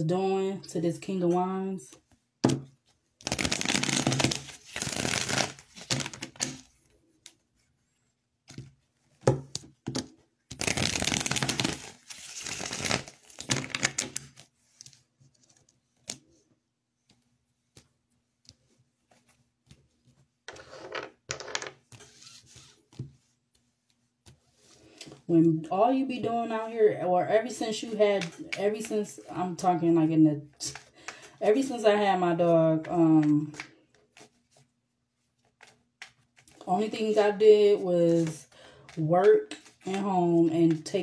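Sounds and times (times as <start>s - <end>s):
cards being shuffled: 3.2s - 7.6s, 8.4s - 16.4s, 17.0s - 25.0s, 35.4s - 36.6s, 38.9s - 40.1s.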